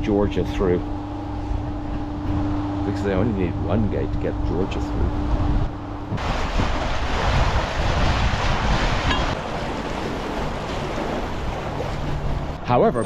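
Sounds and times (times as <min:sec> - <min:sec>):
water rushing into lock: 0:06.1 - 0:12.7.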